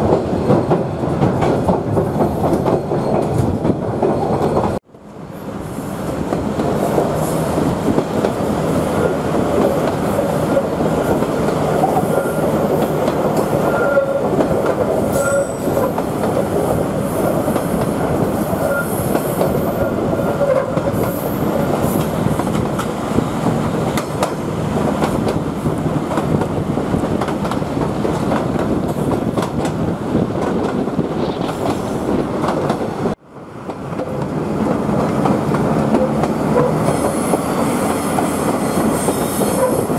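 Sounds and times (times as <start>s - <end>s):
train wheels rumbling on rails: 0.0s - 39.9s
wheels squealing: 10.2s - 16.0s.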